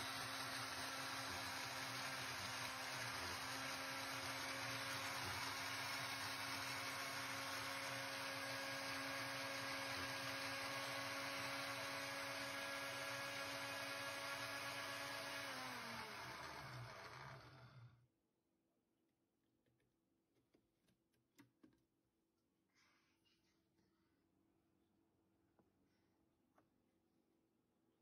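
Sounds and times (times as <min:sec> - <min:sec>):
blender motor whirring: 0:00.0 - 0:18.0.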